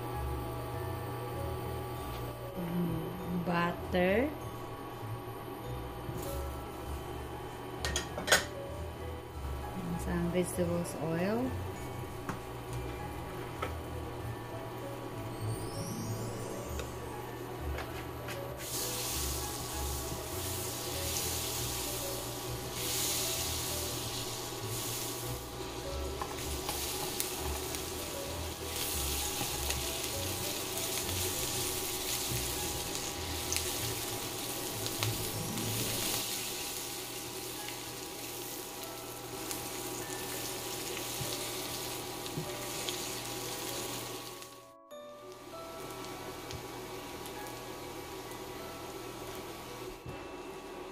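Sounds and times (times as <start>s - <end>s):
garlic sizzling in pan: 18.5s - 44.6s, 45.2s - 50.0s.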